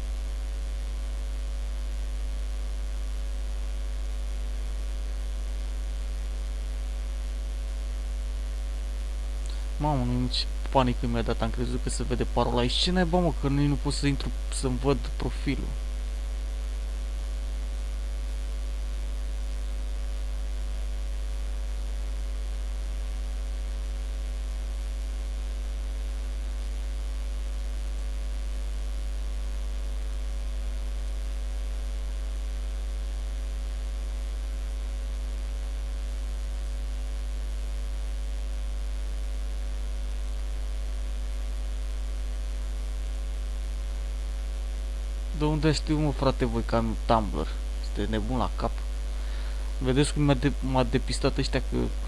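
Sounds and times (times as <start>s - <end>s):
electrical mains hum: 0.0s - 52.0s
faint hiss: 9.1s - 16.3s, 45.2s - 52.0s.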